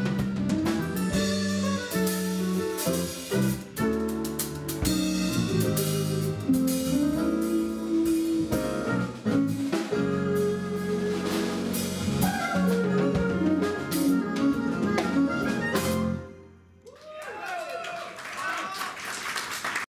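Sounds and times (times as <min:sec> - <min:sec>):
soprano saxophone melody: 0:00.0 - 0:03.8, 0:05.0 - 0:16.4
jazz fusion band playing: 0:00.0 - 0:16.5.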